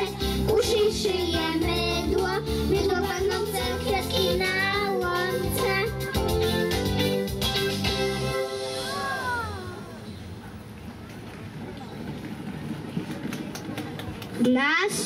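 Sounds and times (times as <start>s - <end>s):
young children singing: 0.0s - 6.3s
amplified backing music: 0.0s - 9.3s.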